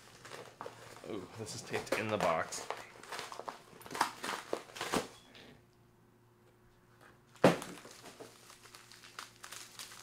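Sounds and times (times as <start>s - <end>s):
cardboard packaging rustling: 0.0s - 5.1s, 7.4s - 10.0s.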